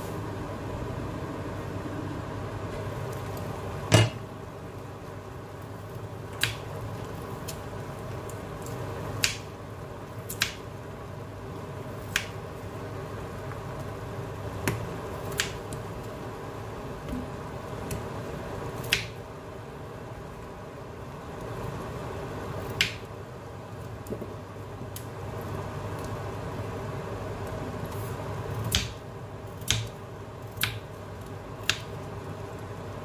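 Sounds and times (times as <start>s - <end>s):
low hum: 0.0s - 5.6s.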